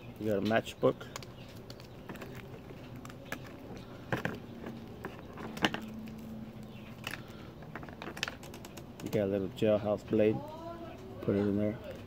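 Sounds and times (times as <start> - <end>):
plastic items clicking and tapping: 0.3 - 9.3.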